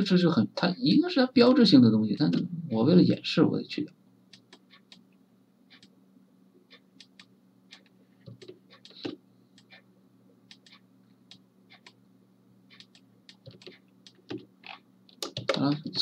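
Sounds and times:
low steady hum: 0.0 - 16.0
mouse and keyboard clicking: 6.7 - 9.8, 10.5 - 12.0, 12.7 - 16.0.

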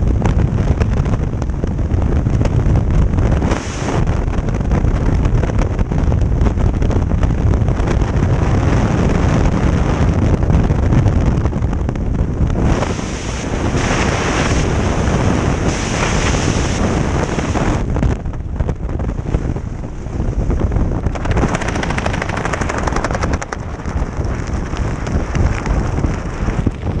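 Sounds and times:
wind rushing over microphone: 0.0 - 27.0
parachute fabric fluttering: 19.7 - 27.0.

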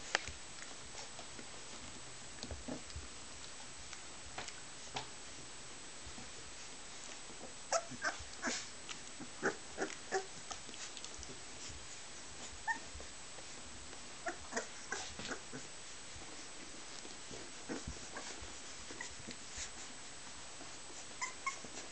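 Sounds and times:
puppies squeaking and whimpering: 21.2 - 21.8.

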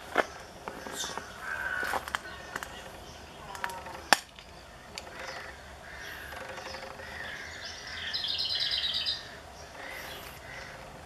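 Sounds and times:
birds calling and singing: 0.0 - 11.0.

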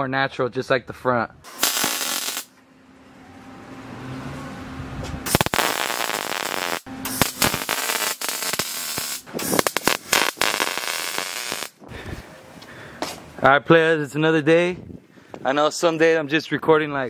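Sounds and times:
welder crackling: 1.5 - 2.5, 5.3 - 11.8.

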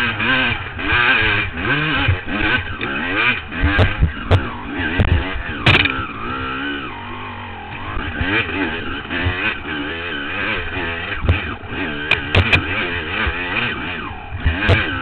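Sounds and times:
dirt bike engine revving: 0.0 - 15.0
sharp knocks: 5.0 - 6.0, 12.1 - 12.7.

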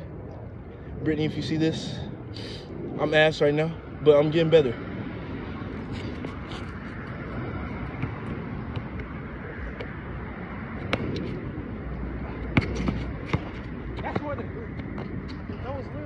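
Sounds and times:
outdoor background rumble: 0.0 - 16.0
basketball bouncing on hard court: 7.9 - 9.0, 12.6 - 14.4.

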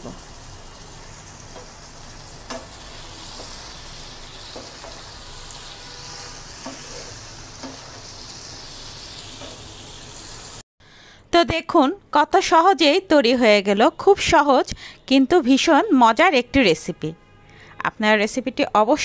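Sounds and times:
pumpkin sizzling in oil: 0.0 - 10.6
spatula knocking on pan: 2.4 - 3.6, 6.6 - 7.0, 7.6 - 8.0.

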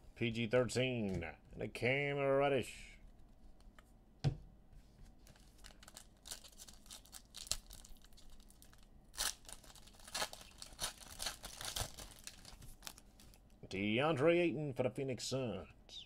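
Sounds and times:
soft knock: 4.2 - 4.4
card wrappers crinkling and tearing: 5.2 - 13.5.

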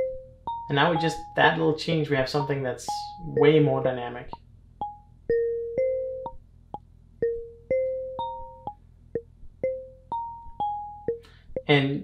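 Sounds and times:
marimba-like synth melody: 0.0 - 1.4, 3.1 - 4.0, 4.8 - 6.4, 7.2 - 8.8, 9.6 - 11.7.

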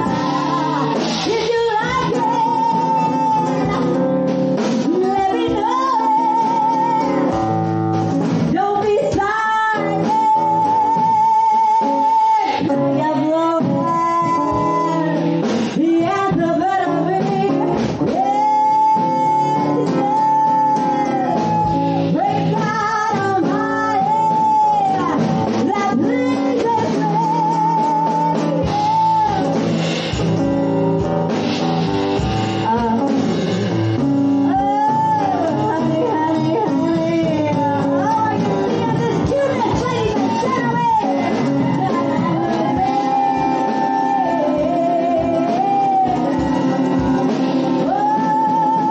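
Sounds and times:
person singing long notes: 0.0 - 7.8, 8.5 - 30.4, 32.6 - 48.9
guitar and drum kit: 0.0 - 48.9.

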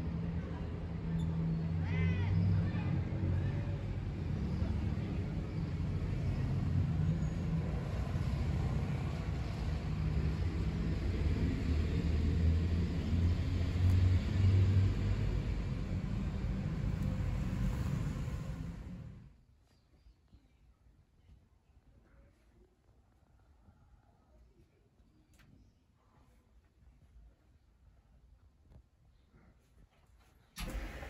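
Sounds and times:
street traffic rumble: 0.0 - 19.3
car passing: 1.7 - 19.3.

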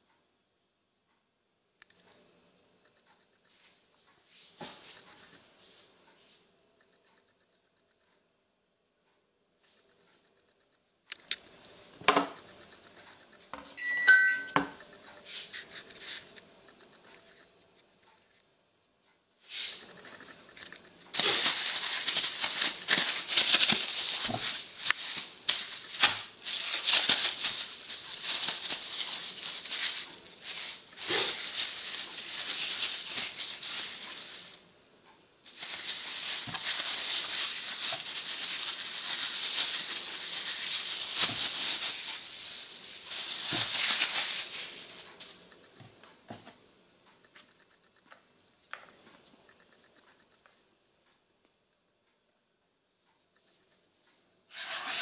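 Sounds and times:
plastic bag crinkling: 20.6 - 34.6, 35.4 - 45.4.

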